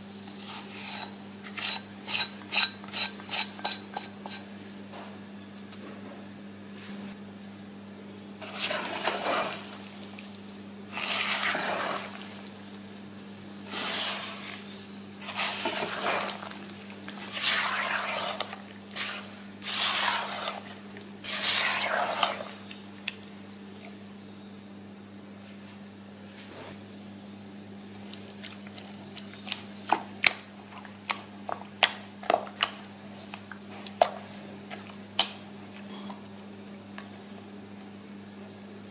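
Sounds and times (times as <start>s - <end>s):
low electrical hum: 0.0s - 38.9s
spatula scraping a pot: 0.4s - 4.5s, 8.4s - 9.8s, 10.9s - 12.4s, 13.7s - 22.5s.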